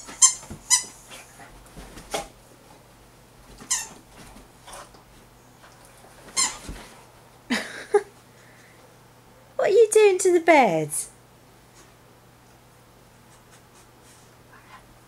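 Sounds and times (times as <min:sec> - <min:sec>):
dog toy squeaking: 0:00.0 - 0:00.9, 0:03.7 - 0:04.0.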